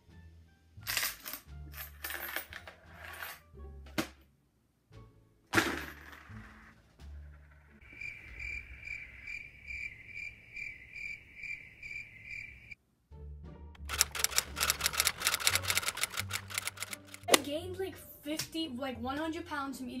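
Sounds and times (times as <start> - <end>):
crickets chirping: 7.8 - 12.8.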